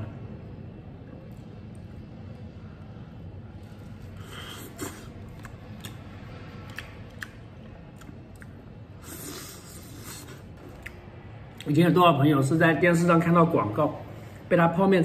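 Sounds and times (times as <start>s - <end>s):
steady low hum: 0.0s - 15.0s
man chewing and slurping noodles: 2.5s - 10.9s.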